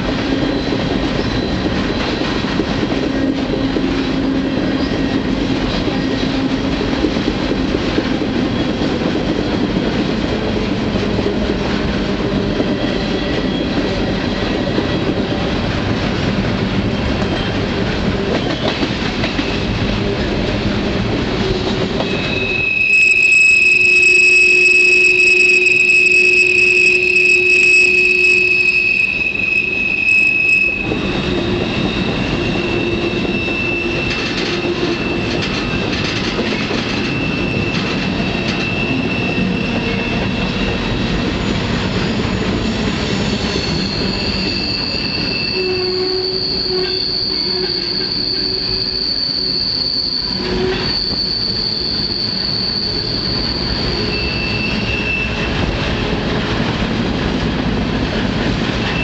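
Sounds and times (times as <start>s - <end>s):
train wheels rumbling on rail: 0.0s - 59.0s
high-pitched wheel squeals: 12.4s - 16.2s, 21.4s - 56.2s.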